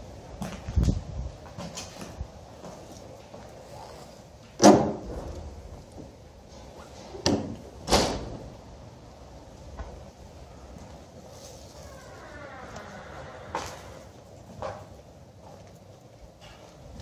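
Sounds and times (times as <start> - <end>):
wooden door slamming: 4.6 - 5.3, 7.3 - 8.4.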